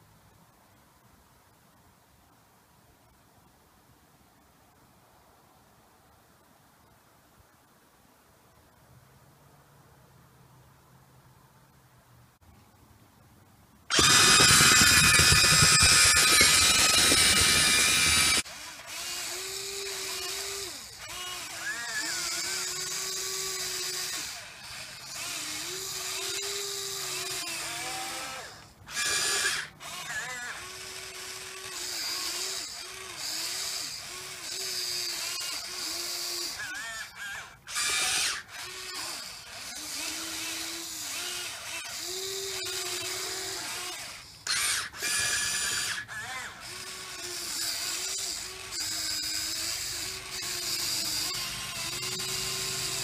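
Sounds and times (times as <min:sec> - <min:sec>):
harsh buzz: 0:13.9 - 0:53.0
motor click: 0:13.9 - 0:53.0
small electric motors whining: 0:13.9 - 0:53.0.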